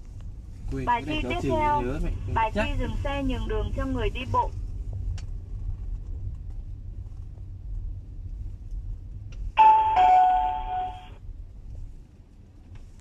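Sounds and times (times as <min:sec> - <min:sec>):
car engine hum: 0:00.0 - 0:05.5
road noise in car cabin: 0:00.0 - 0:13.0
electronic two-tone chime: 0:09.6 - 0:11.1.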